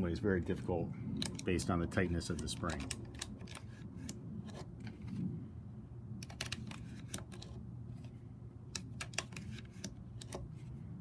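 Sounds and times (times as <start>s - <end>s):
magazine loader clicks and snaps: 1.2s - 1.5s, 2.3s - 4.2s, 8.7s - 10.5s.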